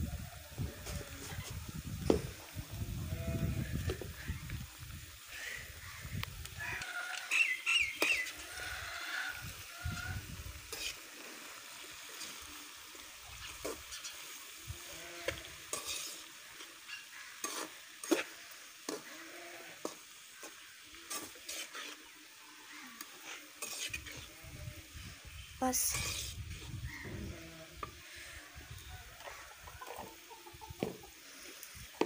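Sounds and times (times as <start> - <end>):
vegetables sizzling in a pan: 0.0 - 32.0
metal spoon scraping a pan: 10.6 - 11.3, 15.3 - 19.2, 19.8 - 22.1, 23.0 - 24.3, 25.8 - 26.6.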